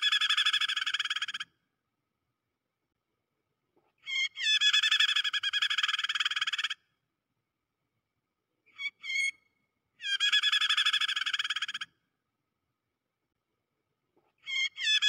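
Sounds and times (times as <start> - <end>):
bird fast chattering calls: 0.0 - 1.4.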